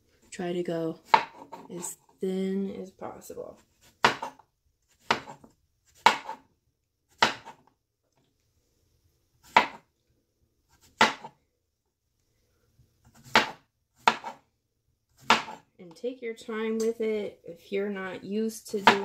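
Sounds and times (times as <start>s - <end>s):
knife chopping on cutting board: 1.1s - 1.7s, 4.0s - 4.4s, 5.0s - 6.4s, 7.2s - 7.6s, 9.5s - 9.8s, 10.8s - 11.4s, 13.1s - 14.4s, 15.2s - 15.6s, 18.8s - 19.0s.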